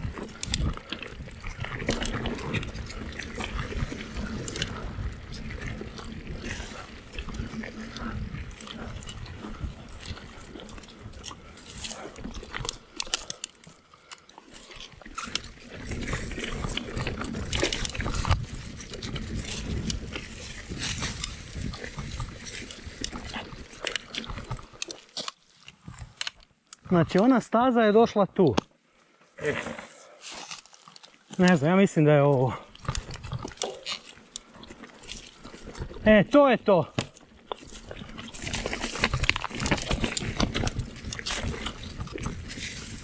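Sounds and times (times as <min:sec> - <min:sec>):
wind rumbling on microphone: 0:00.0 - 0:12.8, 0:15.2 - 0:24.7, 0:37.6 - 0:43.0
bike rattling over bumps: 0:00.0 - 0:13.5, 0:14.6 - 0:24.8, 0:32.3 - 0:43.0
tyres on rock and gravel: 0:00.0 - 0:28.6, 0:29.2 - 0:43.0.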